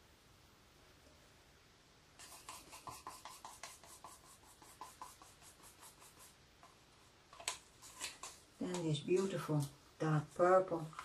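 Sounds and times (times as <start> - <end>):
stick scraping paint cup: 2.2 - 9.4.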